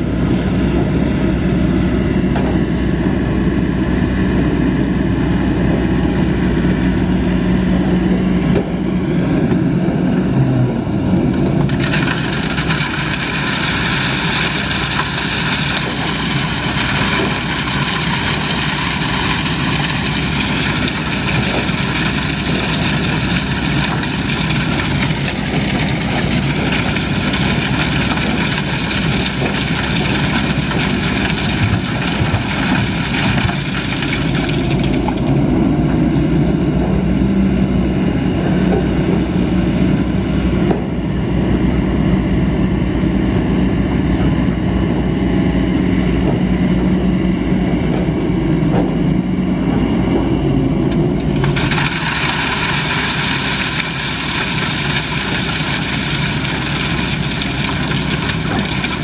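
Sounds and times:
excavator diesel engine running: 0.0 - 59.0
rocks and gravel clattering into metal bed: 11.6 - 35.5, 51.2 - 59.0.

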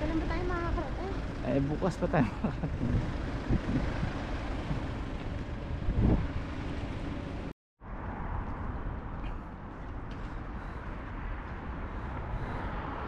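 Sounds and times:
road traffic noise: 0.0 - 13.0
wind on microphone: 2.7 - 6.8.

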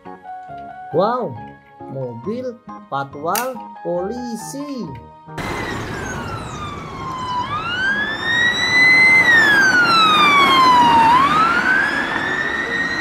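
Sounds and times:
faint road traffic: 5.4 - 13.0
police siren wailing: 5.4 - 13.0.

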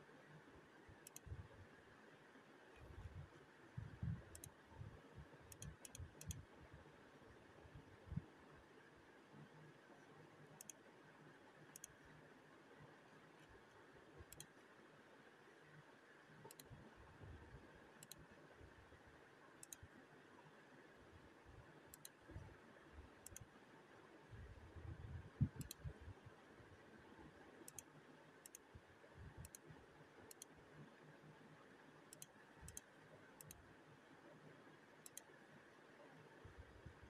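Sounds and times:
soft sharp clicks: 1.0 - 1.4, 4.2 - 4.6, 5.5 - 6.5, 10.6 - 10.9, 11.7 - 12.1, 14.2 - 14.6, 16.4 - 16.8, 18.0 - 18.4, 19.6 - 20.0, 21.9 - 22.5, 23.2 - 23.5, 25.4 - 26.0, 27.6 - 28.7, 29.4 - 29.7, 30.3 - 30.6, 32.1 - 33.7, 35.0 - 35.4.

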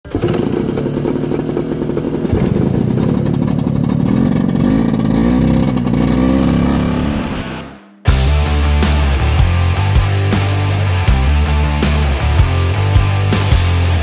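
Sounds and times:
snowmobile engine revving: 0.1 - 14.0.

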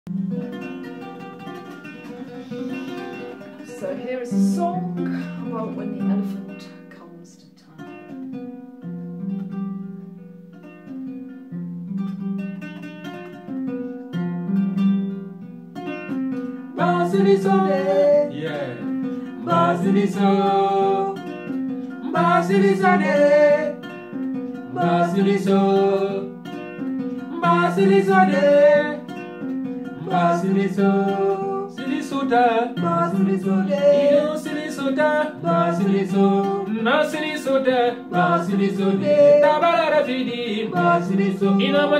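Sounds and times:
kora plucked pattern: 0.1 - 41.9
man singing: 16.8 - 23.9, 24.7 - 26.4, 27.3 - 29.2, 30.0 - 41.9.

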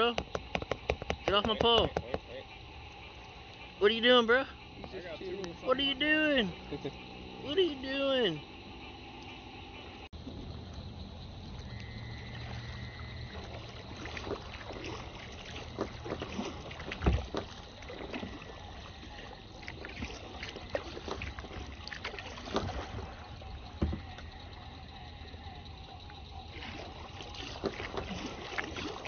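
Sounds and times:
knocks against kayak hull: 0.0 - 2.3, 23.8 - 24.2
paddle splashes: 11.5 - 29.0.

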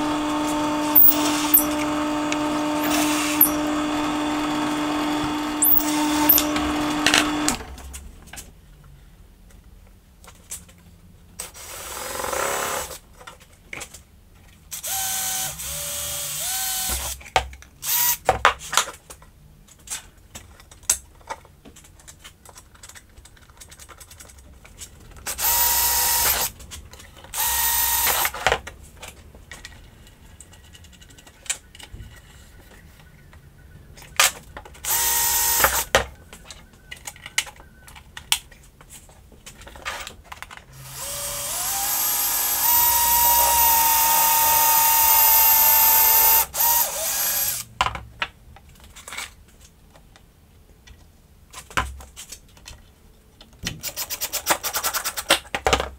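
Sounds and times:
cordless drill running into plywood: 0.0 - 7.8, 14.8 - 17.2, 17.8 - 18.2, 25.3 - 26.5, 27.3 - 28.4, 34.8 - 36.0, 40.7 - 47.7.

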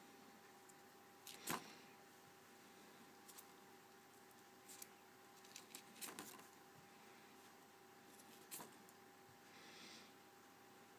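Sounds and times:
notepad pages rustling: 4.6 - 6.6, 8.1 - 8.9.

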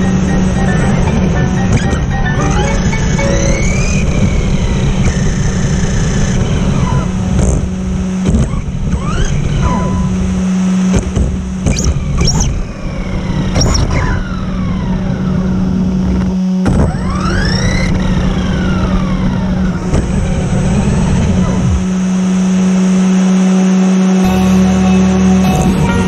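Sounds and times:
steady low hum: 24.2 - 26.0.

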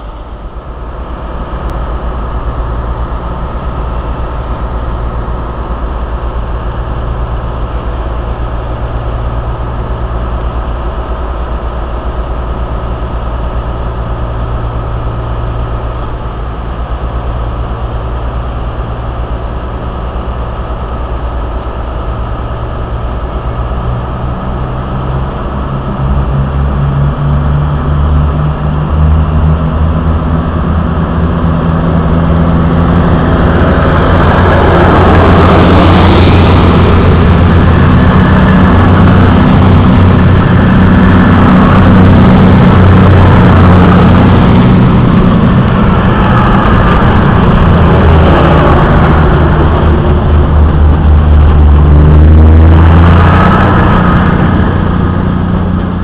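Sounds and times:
diesel train engines: 0.0 - 56.0
train wheels on rails: 0.0 - 56.0.

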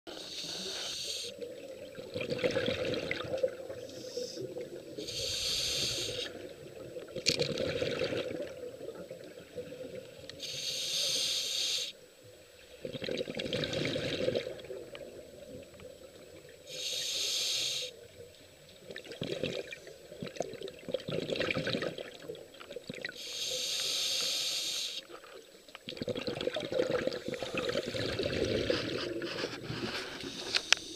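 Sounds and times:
regulator breath hiss: 0.1 - 1.4, 3.8 - 6.4, 10.4 - 12.0, 16.7 - 18.0, 23.2 - 25.1, 30.2 - 30.9
exhaled air bubbling: 1.2 - 10.4, 12.7 - 16.8, 18.0 - 23.2, 25.0 - 30.6.

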